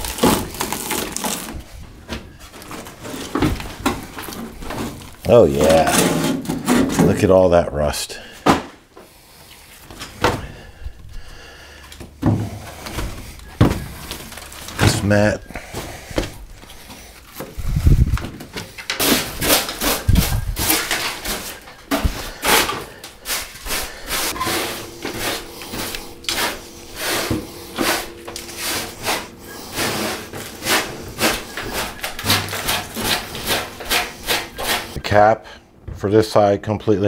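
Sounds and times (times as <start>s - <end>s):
broom sweeping on steel floor: 19.0s - 35.0s.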